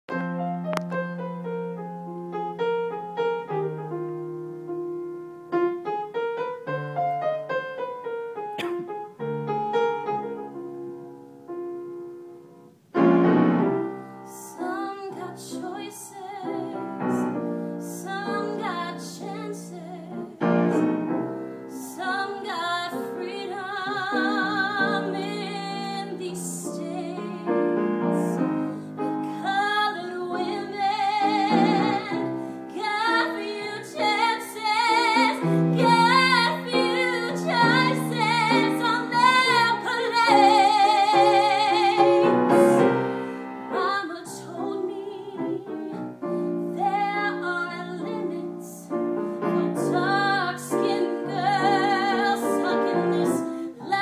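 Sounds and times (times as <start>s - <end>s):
piano accompaniment: 0.0s - 54.0s
woman singing with vibrato: 14.3s - 17.2s, 17.8s - 20.5s, 21.8s - 42.9s, 43.7s - 46.0s, 46.6s - 54.0s.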